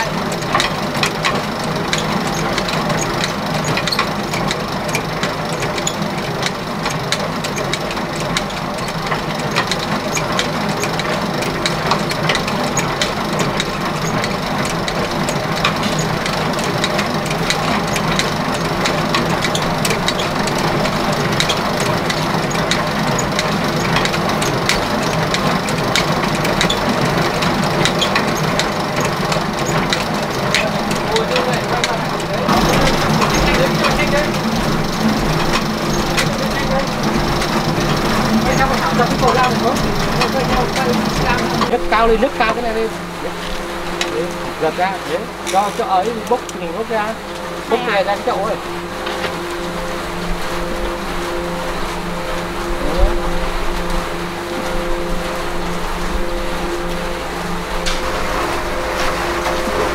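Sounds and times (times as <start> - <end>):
rattle of small clicks: 0.0 - 41.7
machine motor humming: 0.0 - 59.9.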